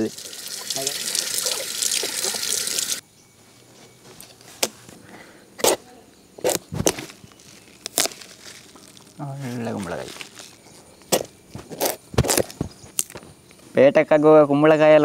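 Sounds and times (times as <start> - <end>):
running water splashing: 0.0 - 3.0.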